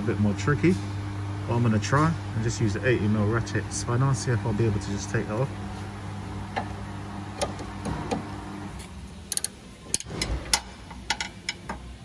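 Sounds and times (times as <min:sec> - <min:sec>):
ratchet spanner clicking: 0:09.3 - 0:11.3.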